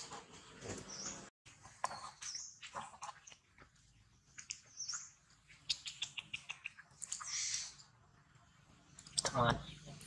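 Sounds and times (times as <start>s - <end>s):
monkey mouth clicks and smacks: 5.7s - 7.3s.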